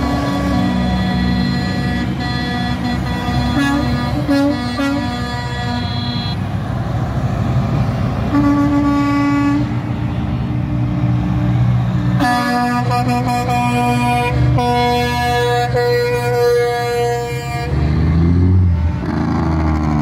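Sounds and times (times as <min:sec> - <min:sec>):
truck air horn blasts: 0:00.0 - 0:06.4, 0:08.3 - 0:09.8, 0:12.2 - 0:17.9
trucks rumbling past: 0:00.0 - 0:20.0.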